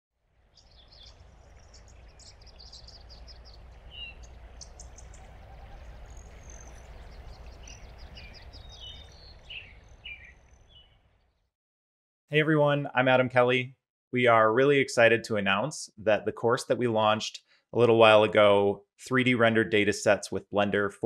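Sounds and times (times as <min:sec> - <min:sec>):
small birds chirping: 0:00.5 - 0:11.5
steady low rumble: 0:00.6 - 0:10.6.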